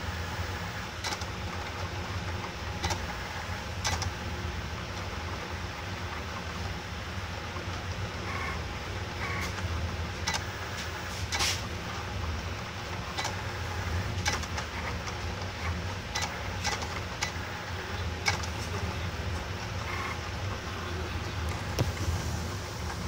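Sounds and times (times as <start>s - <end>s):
pen plotter motors whirring: 0.0s - 1.6s, 2.2s - 4.3s, 8.0s - 11.8s, 12.9s - 23.0s.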